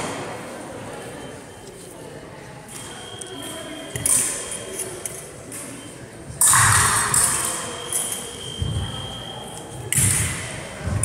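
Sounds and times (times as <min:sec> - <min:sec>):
faint steady high tone: 0:02.7 - 0:06.0, 0:07.5 - 0:09.9
metallic blade clinks and scrapes: 0:06.4 - 0:08.6.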